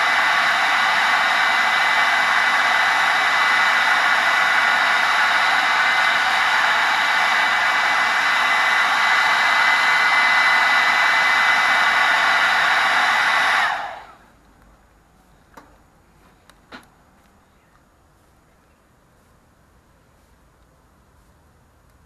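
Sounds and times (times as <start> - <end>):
hairdryer running: 0.0 - 14.2.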